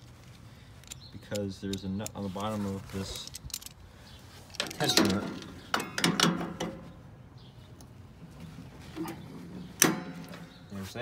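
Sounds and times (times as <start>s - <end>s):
pliers clicking against steel: 3.2s - 3.8s.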